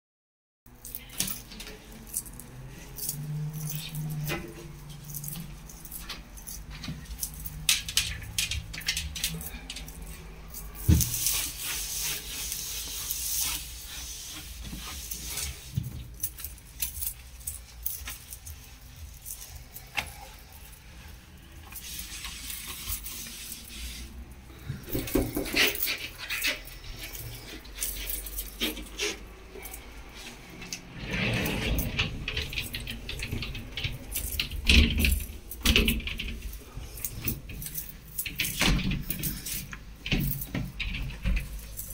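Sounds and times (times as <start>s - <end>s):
handling clicks and clinks: 0.7s - 41.9s
cloth rubbing and wiping: 10.7s - 16.5s, 17.7s - 24.8s.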